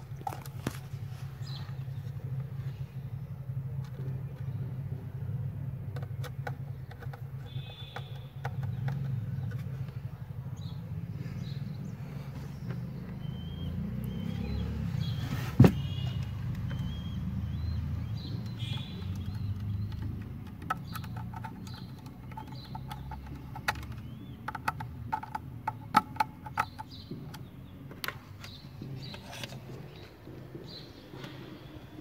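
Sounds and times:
faint bird chirps: 7.4 - 20.1
clicks and knocks from wires: 18.2 - 30.0.

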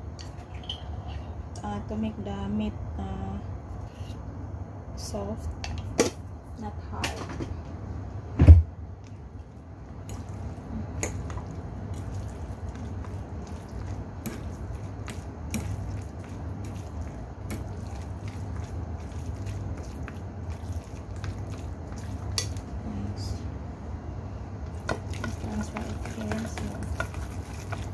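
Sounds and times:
low steady hum: 0.0 - 27.9
wet squishing of minced meat: 9.0 - 22.8, 24.6 - 27.9.

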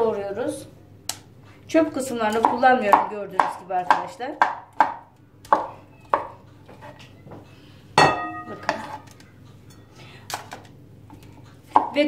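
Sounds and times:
knife clinking against glass: 8.0 - 9.0.

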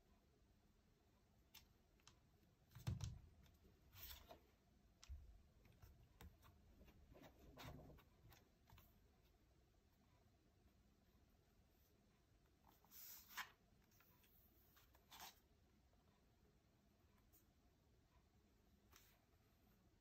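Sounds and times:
faint clicks and taps: 1.2 - 9.4.

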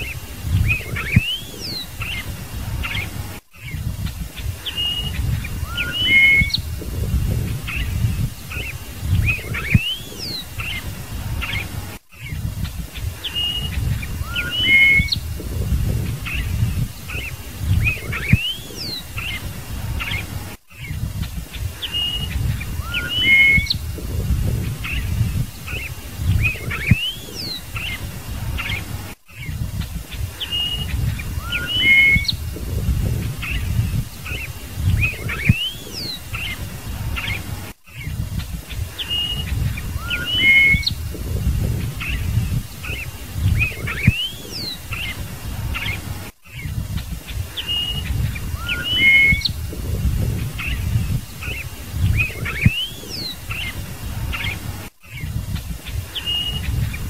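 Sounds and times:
blackbird singing: 0.0 - 57.0
low rumble: 6.6 - 9.6, 15.2 - 18.4, 23.8 - 25.6, 32.3 - 34.1, 40.9 - 44.0, 49.5 - 51.4.

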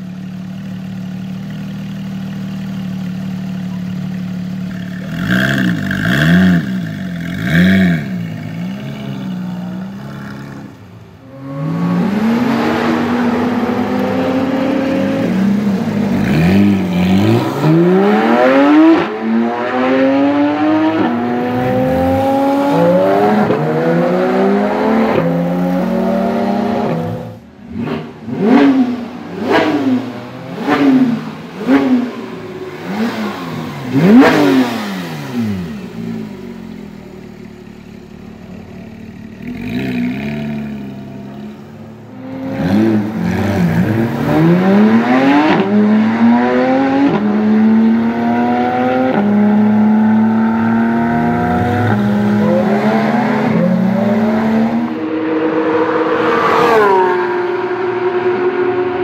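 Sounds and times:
sports car engine revving: 2.5 - 59.0
car accelerating through gears: 10.0 - 36.3, 42.1 - 59.0.

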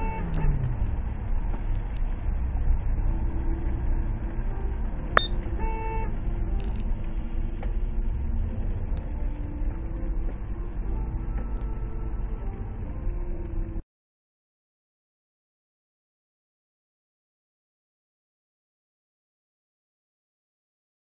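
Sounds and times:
car horn beep: 0.0 - 0.9, 5.2 - 6.2
car cabin road rumble: 0.0 - 13.8.

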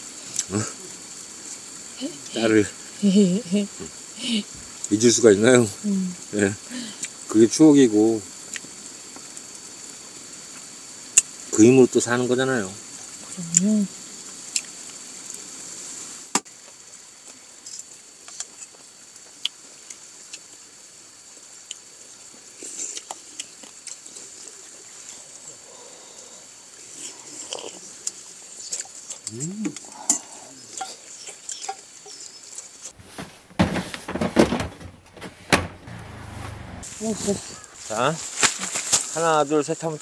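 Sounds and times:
murmured voice: 29.3 - 30.7
plastic boxes knocking and scraping: 33.1 - 35.8.

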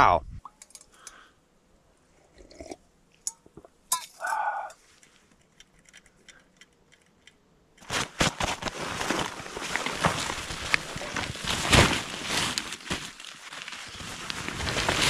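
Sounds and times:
metal camp pot clinking: 0.5 - 0.9, 2.4 - 4.8
nylon fabric rustling and crinkling: 7.8 - 15.0.

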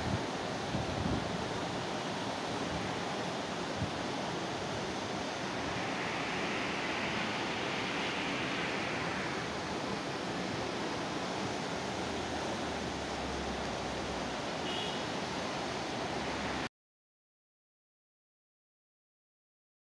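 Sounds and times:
wind rushing: 2.5 - 13.2
car road noise: 4.2 - 16.7.

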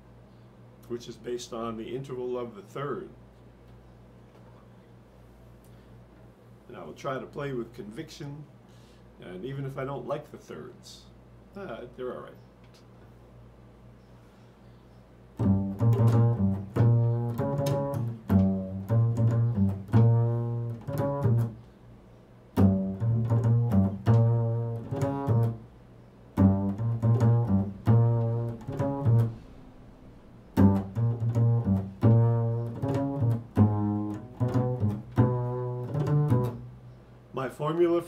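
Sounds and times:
double bass pizzicato: 15.4 - 21.6, 22.5 - 25.7, 26.3 - 29.7, 30.5 - 36.9.

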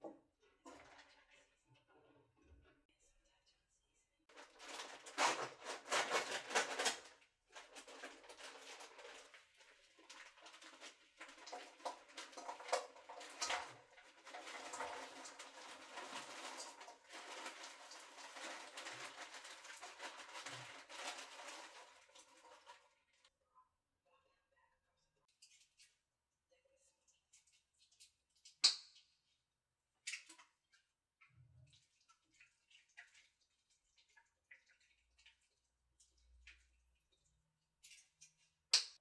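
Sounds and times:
plastic bag crinkling: 4.3 - 22.9.

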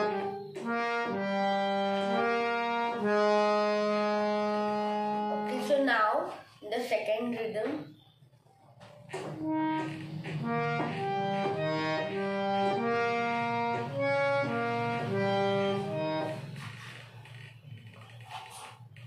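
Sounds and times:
harmonium melody: 0.0 - 5.8, 9.0 - 17.0.

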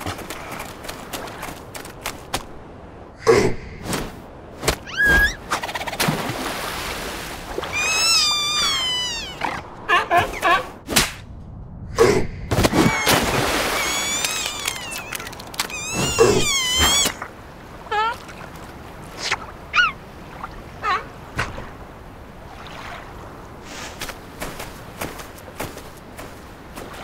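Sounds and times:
cartoon seal warbling calls: 4.8 - 5.9, 19.7 - 20.0.

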